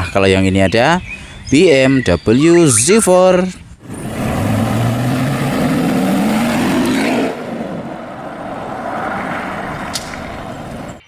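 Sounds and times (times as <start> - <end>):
sports car engine revving: 3.8 - 10.9.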